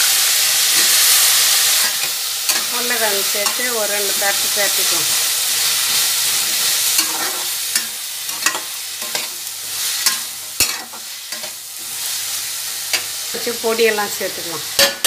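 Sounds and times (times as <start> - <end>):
vegetables sizzling in oil: 0.0 - 15.0
metal spatula scraping pan: 5.9 - 11.6.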